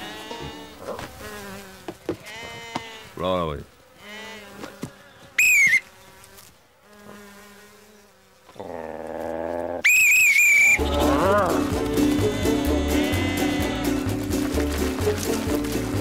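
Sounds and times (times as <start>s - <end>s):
herding whistle blasts: 5.4s - 5.8s, 9.9s - 10.8s
low buzzing call: 5.4s - 5.9s, 9.7s - 14.4s
music: 10.8s - 16.0s.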